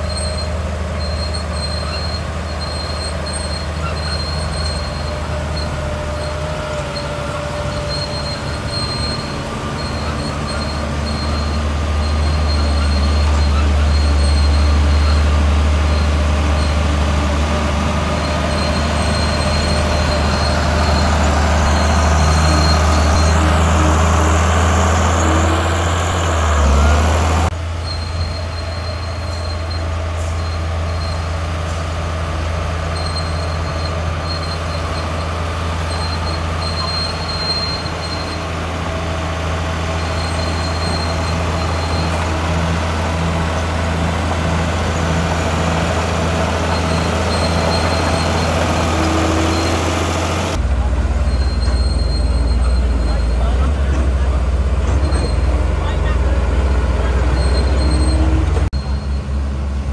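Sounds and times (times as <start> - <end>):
heavy diesel machinery droning: 0.0 - 59.9
engine revving: 4.6 - 27.6, 35.9 - 59.9.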